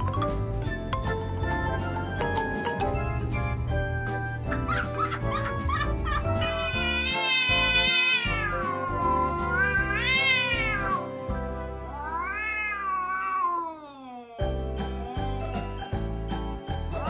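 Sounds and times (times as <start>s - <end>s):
background music with steady beat: 0.0s - 11.8s, 14.5s - 17.0s
cat yowling: 6.4s - 11.0s, 11.9s - 15.4s.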